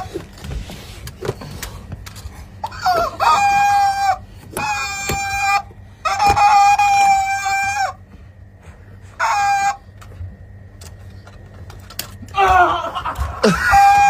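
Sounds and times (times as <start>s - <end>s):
rubber chicken toy squawking: 2.7s - 8.0s, 9.2s - 9.8s.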